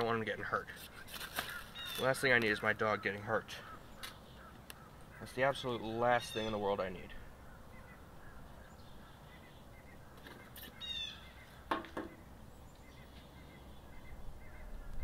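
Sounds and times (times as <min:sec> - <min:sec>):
faint bird chirps: 0:00.8 - 0:02.2, 0:02.9 - 0:15.0
sharp knocks: 0:11.7 - 0:12.2.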